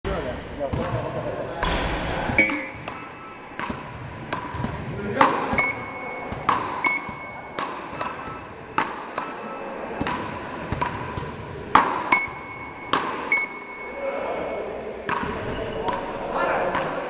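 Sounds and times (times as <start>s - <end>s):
paddle rackets striking ball: 1.6s - 13.8s, 15.1s - 16.0s
short electronic beeps: 2.4s - 3.5s, 5.5s - 9.8s, 12.1s - 14.0s.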